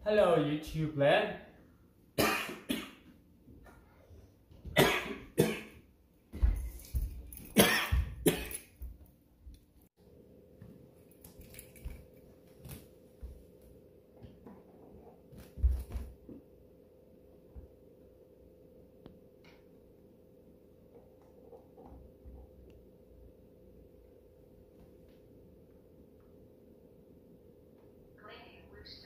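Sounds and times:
man coughing: 0:02.2 - 0:03.0, 0:04.8 - 0:05.8, 0:07.6 - 0:08.7.

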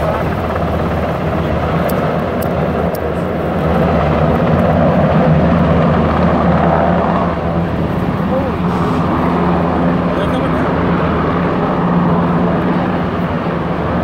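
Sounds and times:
helicopter rotor and engine drone: 0:00.0 - 0:14.0.

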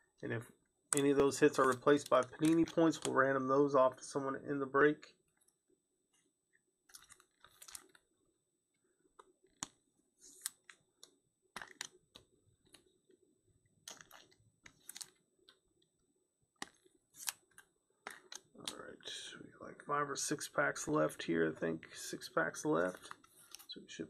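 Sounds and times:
trading cards being shuffled: 0:01.0 - 0:03.3, 0:06.9 - 0:08.0, 0:09.2 - 0:12.8, 0:13.8 - 0:15.6, 0:16.6 - 0:18.8, 0:22.7 - 0:23.8.

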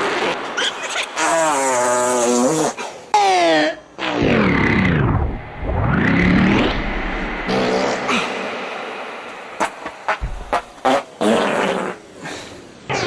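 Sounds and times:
farts through a synthesizer: 0:04.0 - 0:08.5, 0:09.6 - 0:12.1.

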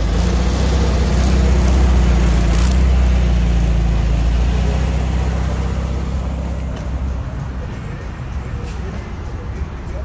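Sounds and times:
car engine pulling away: 0:00.0 - 0:07.7.

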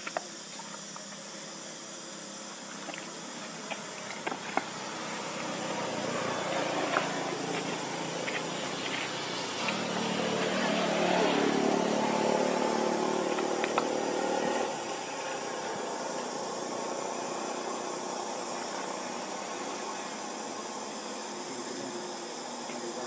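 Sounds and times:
steady background hiss: 0:00.0 - 0:23.0
vehicle engine running: 0:04.5 - 0:14.9.

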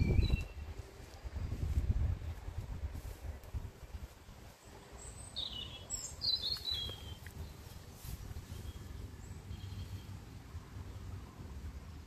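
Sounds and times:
small bird chirping: 0:00.0 - 0:00.7, 0:04.6 - 0:10.2
low uneven rumble: 0:06.6 - 0:12.0.

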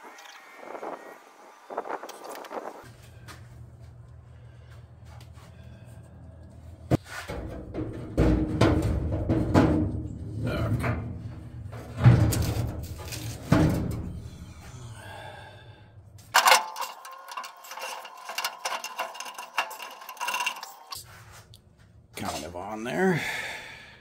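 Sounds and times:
small metal knocks and rattles: 0:16.3 - 0:21.0.

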